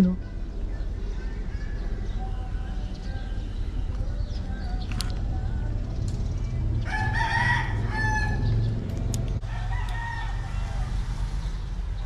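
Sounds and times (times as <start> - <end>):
rooster crowing: 6.8 - 8.6, 9.4 - 11.0.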